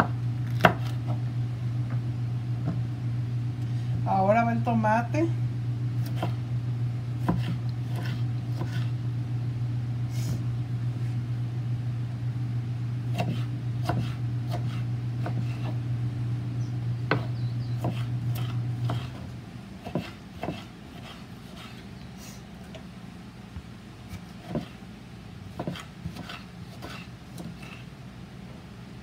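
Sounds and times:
machine hum: 0:00.0 - 0:29.0
knife dicing on wooden board: 0:00.5 - 0:01.1, 0:06.0 - 0:06.4, 0:07.2 - 0:08.9, 0:13.1 - 0:15.8, 0:17.1 - 0:19.2, 0:19.8 - 0:21.8, 0:24.1 - 0:24.8, 0:25.5 - 0:27.9.

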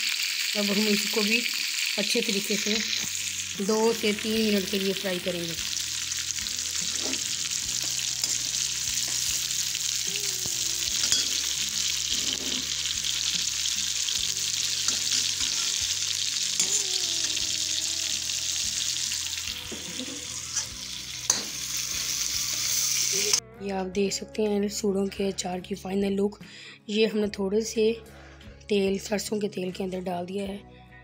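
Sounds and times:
food sizzling in hot oil: 0:00.0 - 0:23.4
spoon scraping a wok: 0:06.8 - 0:09.9, 0:10.9 - 0:13.7, 0:14.7 - 0:16.9.

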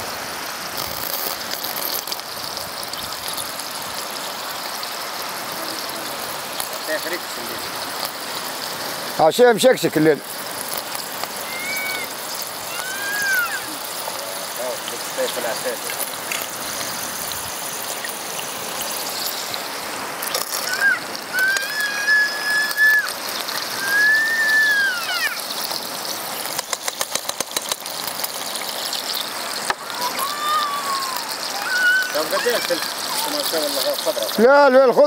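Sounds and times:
wind: 0:00.0 - 0:35.0
utensil scraping inside can: 0:00.7 - 0:02.3
high whistle-like tones: 0:20.6 - 0:25.3.

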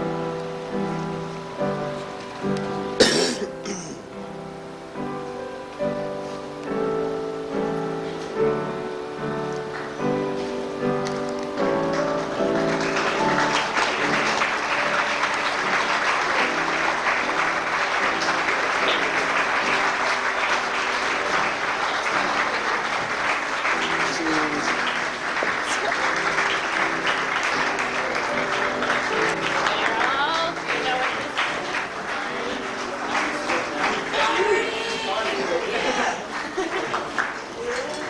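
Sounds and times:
crowd applause: 0:08.8 - 0:38.0.

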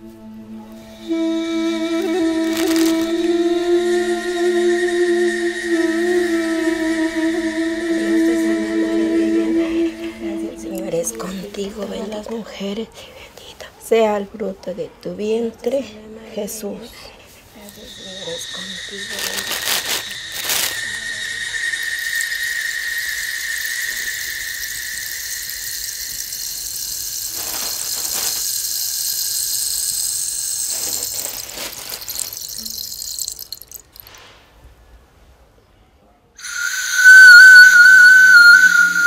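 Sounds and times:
steady high whistling tone: 0:00.0 - 0:12.3, 0:17.5 - 0:34.1, 0:36.4 - 0:39.0
clay bird whistle: 0:00.8 - 0:11.4, 0:17.7 - 0:34.1, 0:36.4 - 0:39.0
hiss: 0:17.4 - 0:33.3, 0:36.4 - 0:39.0
rustles: 0:19.1 - 0:21.1, 0:26.8 - 0:28.8, 0:30.5 - 0:34.6.

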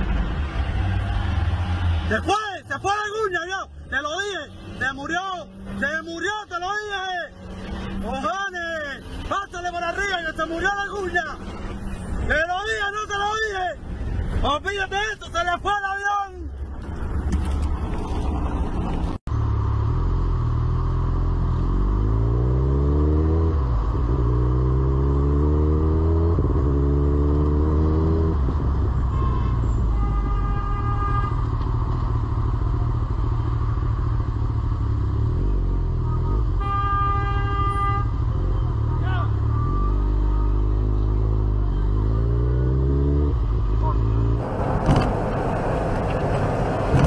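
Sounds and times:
vehicle horn blasts: 0:29.1 - 0:31.4, 0:36.1 - 0:38.2.

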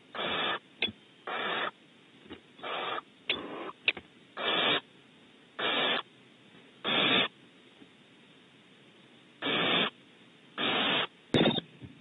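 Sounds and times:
owl rasping hiss: 0:00.0 - 0:00.6, 0:01.2 - 0:01.8, 0:02.6 - 0:04.9, 0:05.6 - 0:06.1, 0:06.8 - 0:07.4, 0:09.4 - 0:10.0, 0:10.6 - 0:11.2.

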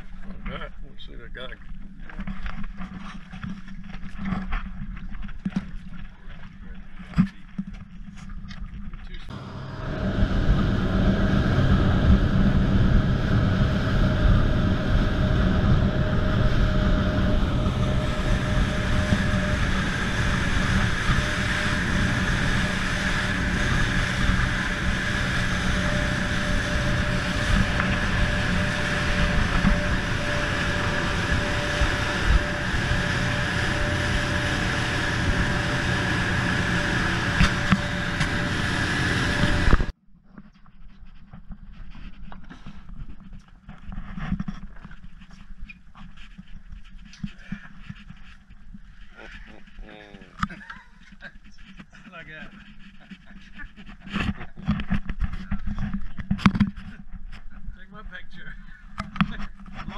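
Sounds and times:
outboard motor running: 0:00.0 - 0:40.0, 0:41.3 - 0:59.9
wind and water rushing: 0:09.3 - 0:39.9.

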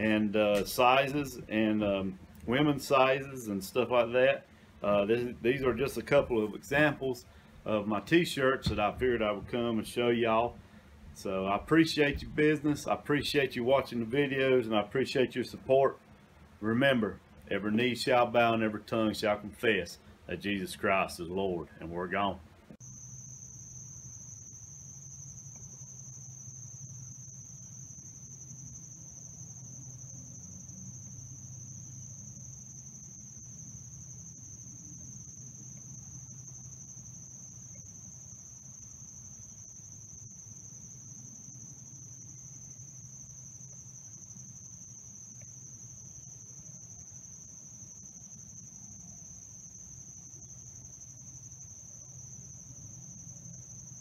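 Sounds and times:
crickets trilling: 0:00.0 - 0:54.0.

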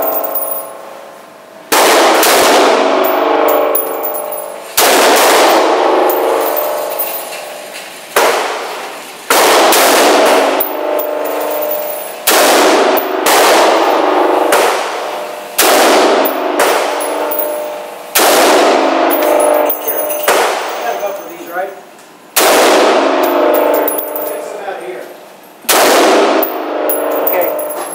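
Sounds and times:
rifle shots with echo: 0:01.7 - 0:03.4, 0:04.8 - 0:06.0, 0:12.3 - 0:13.9, 0:15.6 - 0:16.9, 0:22.4 - 0:23.2, 0:25.7 - 0:26.8.

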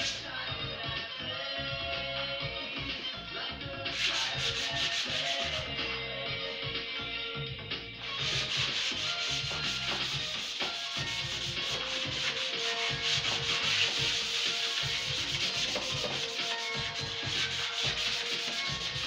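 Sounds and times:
sandpaper rubbing on wood: 0:03.9 - 0:05.7, 0:08.2 - 0:19.0.

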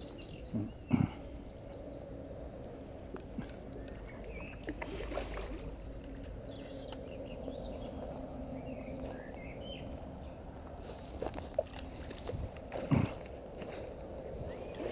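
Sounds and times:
water sloshing and splashing: 0:03.4 - 0:07.1, 0:10.8 - 0:14.9.

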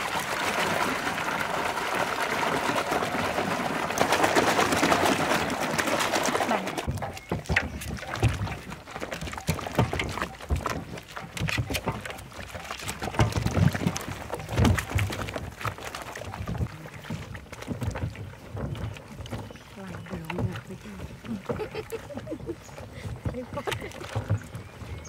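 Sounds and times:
soapy water sloshing and splashing: 0:00.0 - 0:25.0
knocks and thuds: 0:12.8 - 0:15.7.

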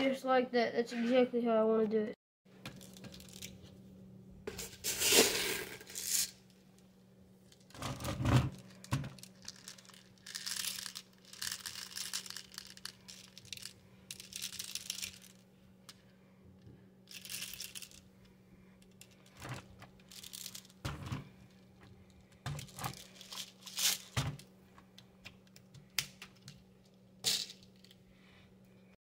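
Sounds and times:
plastic pellets rattling: 0:02.7 - 0:03.6, 0:07.6 - 0:15.4, 0:17.1 - 0:18.0, 0:18.9 - 0:21.7, 0:22.4 - 0:24.4.

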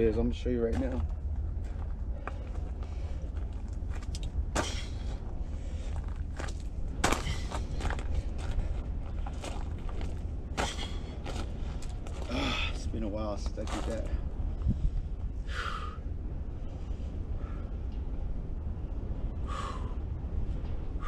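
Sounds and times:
steady low rumble: 0:00.0 - 0:21.0.

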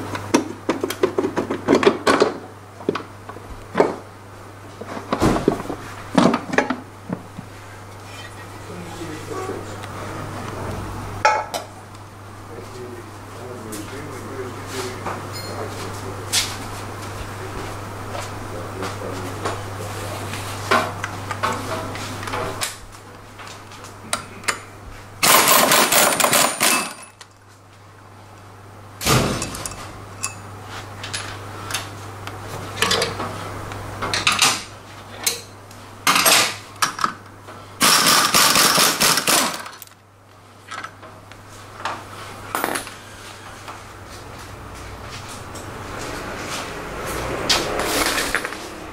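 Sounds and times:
pneumatic tool rattling: 0:25.2 - 0:27.0, 0:37.8 - 0:39.9.

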